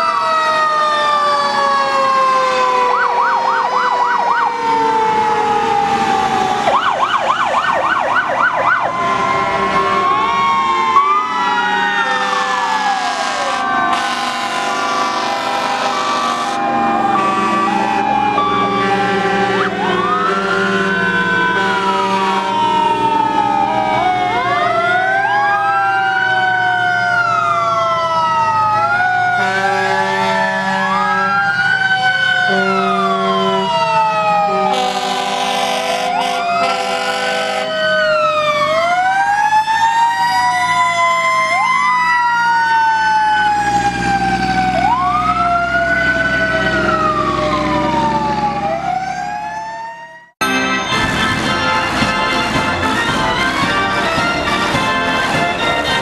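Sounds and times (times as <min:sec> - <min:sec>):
fire engine sirens wailing: 0:00.0 - 0:56.0
long horn blasts: 0:12.0 - 0:22.7, 0:29.4 - 0:31.4, 0:32.5 - 0:33.8, 0:34.5 - 0:37.8, 0:50.4 - 0:56.0.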